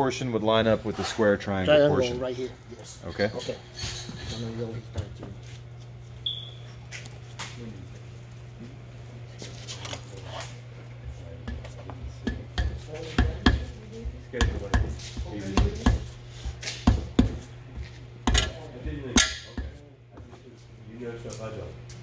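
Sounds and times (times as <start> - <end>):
steady low hum: 0.0 - 22.0
hand tool knocking on metal: 11.5 - 13.8, 14.4 - 16.1.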